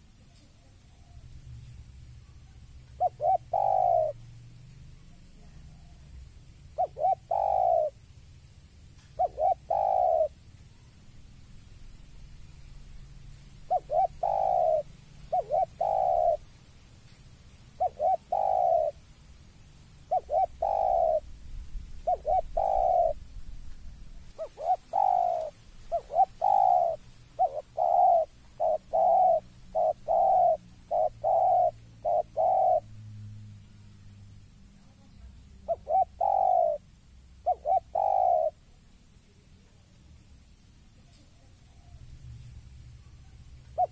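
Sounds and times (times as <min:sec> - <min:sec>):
dove cooing: 0:02.2 - 0:04.3, 0:05.0 - 0:08.1, 0:09.0 - 0:10.9, 0:13.5 - 0:16.5, 0:17.7 - 0:19.0, 0:20.0 - 0:21.3, 0:22.0 - 0:33.0, 0:34.8 - 0:39.5, 0:43.0 - 0:43.9.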